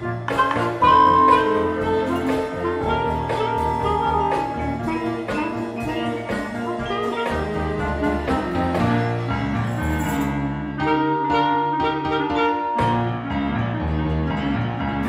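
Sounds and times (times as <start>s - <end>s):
clarinet: 0.0s - 9.6s, 10.7s - 14.0s
repeating bass line: 0.0s - 9.8s
drum kit: 0.0s - 10.4s
electric guitar: 0.0s - 15.0s
small jazz band playing: 0.0s - 15.0s
mallet keyboard percussion: 0.2s - 10.4s.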